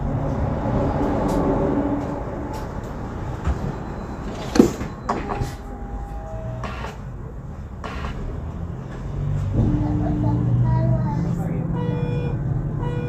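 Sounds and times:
bus engine humming: 0.0 - 13.0
steady high tone: 3.0 - 8.3, 9.6 - 13.0.

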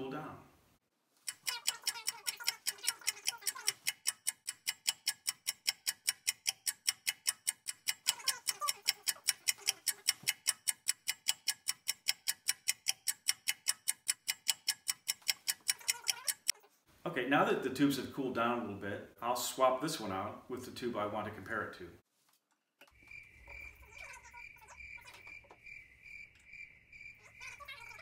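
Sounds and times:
clock ticking rapidly: 1.2 - 16.6, 23.1 - 25.6, 27.0 - 28.0.

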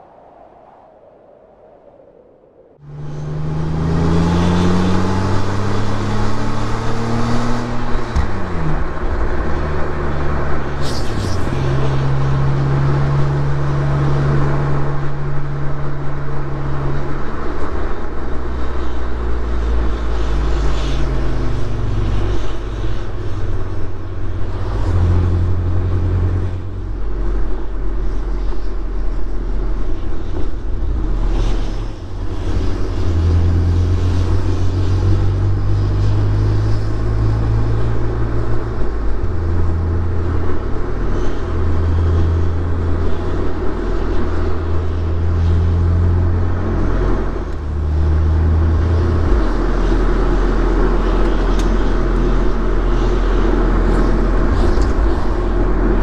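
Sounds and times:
road noise: 0.0 - 56.0
car engine revving: 2.8 - 17.9, 29.2 - 56.0.

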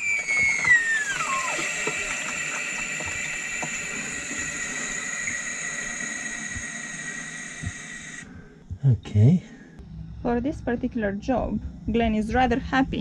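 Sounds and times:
hydraulic oil hissing: 0.0 - 8.4.

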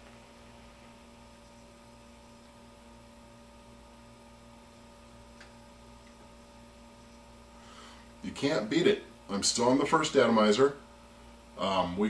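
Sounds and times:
electrical mains hum: 0.0 - 12.0.

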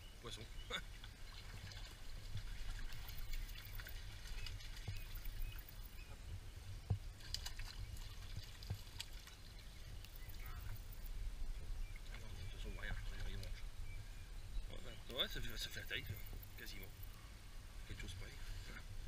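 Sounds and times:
stream water splashing: 0.7 - 6.2, 6.8 - 13.6.

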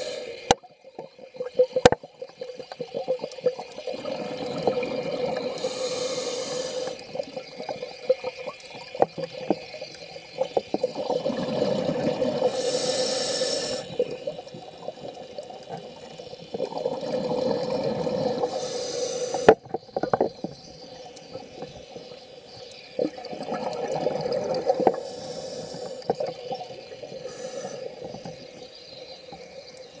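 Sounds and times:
regulator inhale hiss: 0.0 - 0.6, 5.4 - 7.3, 12.2 - 14.3, 17.9 - 19.6, 24.8 - 26.3, 27.1 - 28.7
exhaled bubbles burbling: 0.4 - 6.0, 6.9 - 12.7, 13.8 - 18.6, 22.9 - 28.5.

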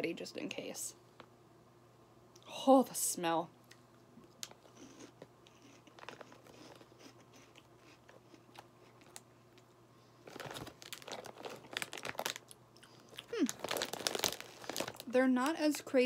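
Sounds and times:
crunchy chewing: 3.7 - 15.0
plastic bag crinkling: 10.2 - 15.8.

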